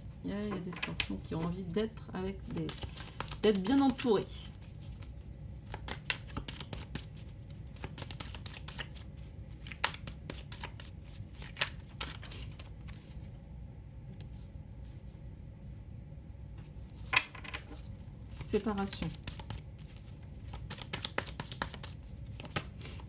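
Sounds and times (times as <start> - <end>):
steady low hum: 0.0 - 23.0
cards shuffled by hand: 0.4 - 1.7, 2.4 - 13.3, 17.0 - 23.0
card laid on table: 17.1 - 17.8.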